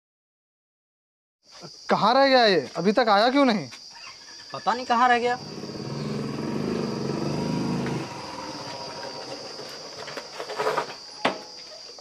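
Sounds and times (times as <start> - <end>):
motorcycle engine running: 5.4 - 9.9.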